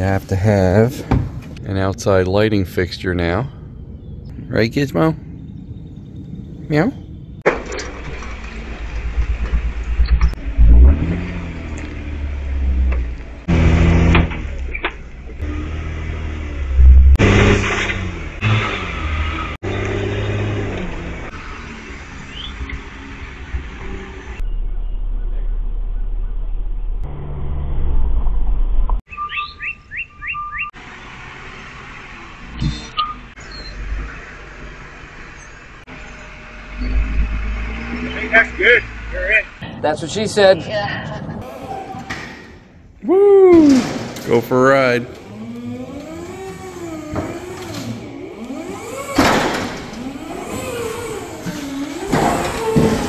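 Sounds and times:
vehicle rumble: 0.0s - 53.0s
bird chirping: 3.4s - 7.4s, 21.4s - 22.8s, 24.4s - 27.0s, 29.1s - 31.1s, 32.6s - 34.4s
loud clunk: 7.4s - 11.3s, 49.1s - 50.0s
electric drive motors whining: 45.1s - 53.0s.

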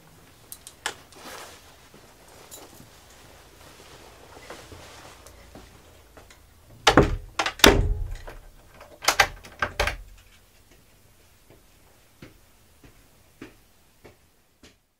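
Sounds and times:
sharp knocks and clicks: 6.3s - 10.4s
heavy door thuds: 6.7s - 8.6s.

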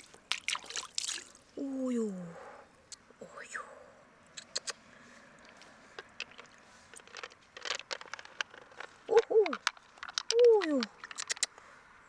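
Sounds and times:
beads clicking against shell: 5.4s - 11.6s.

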